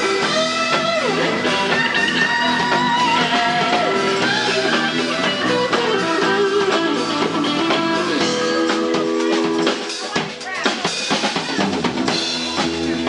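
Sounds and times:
electric guitar lead lines: 0:00.0 - 0:10.3
rhythm and blues band playing: 0:00.0 - 0:13.0.

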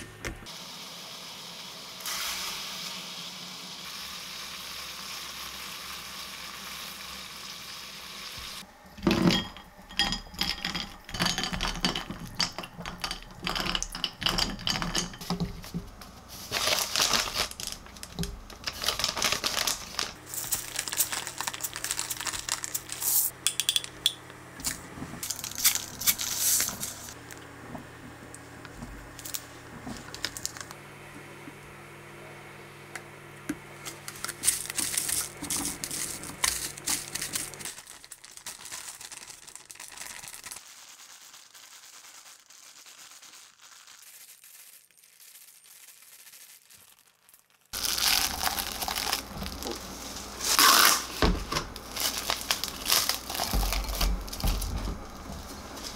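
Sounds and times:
plastic bag crinkling: 0:11.4 - 0:23.3, 0:24.6 - 0:27.2, 0:29.1 - 0:30.8, 0:34.0 - 0:55.9.

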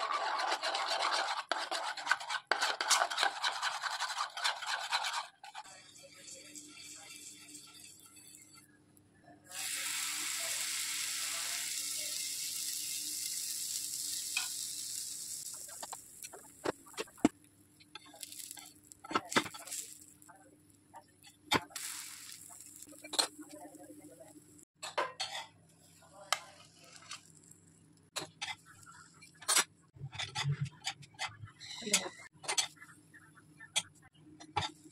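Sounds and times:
metal spatula scraping pan: 0:00.0 - 0:08.7
batter sizzling on a griddle: 0:05.7 - 0:08.7, 0:09.5 - 0:17.1, 0:17.9 - 0:20.3, 0:21.6 - 0:24.2.

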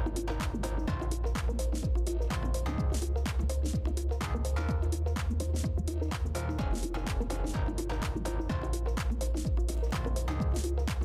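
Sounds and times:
music with beat and deep bass: 0:00.0 - 0:11.0.

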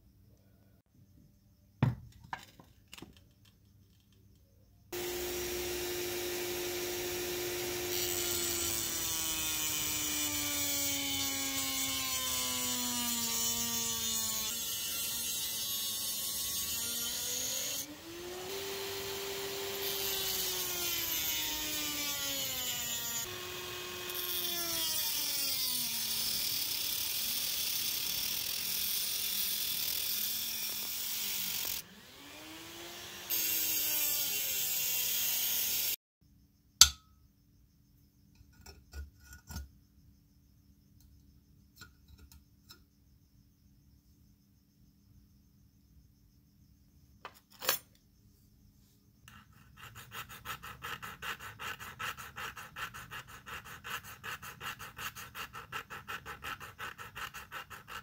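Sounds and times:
cutting disc grinding hiss: 0:05.0 - 0:09.0
rotary tool motor hum: 0:05.0 - 0:36.0.

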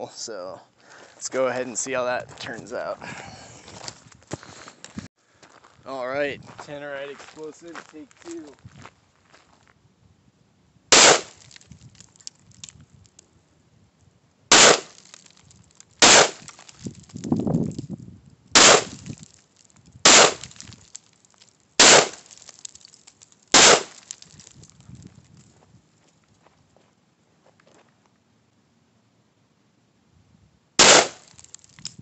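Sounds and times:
rifle shots: 0:10.9 - 0:11.4, 0:14.5 - 0:15.0, 0:16.0 - 0:16.5, 0:18.6 - 0:19.0, 0:20.1 - 0:20.5, 0:21.8 - 0:22.2, 0:23.5 - 0:24.0, 0:30.8 - 0:31.3.

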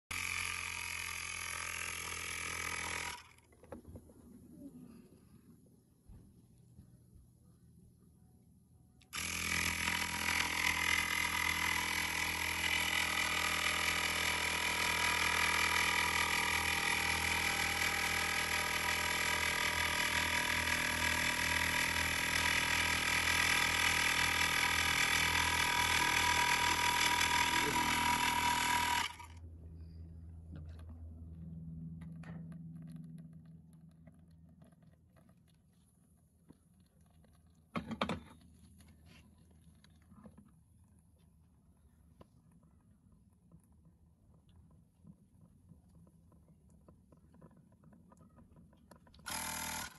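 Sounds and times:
electric air pump whining: 0:09.1 - 0:29.5, 0:49.2 - 0:49.9.

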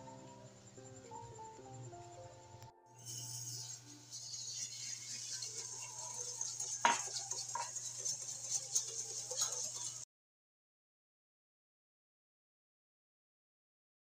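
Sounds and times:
whisk scraping glass bowl: 0:03.0 - 0:10.1.

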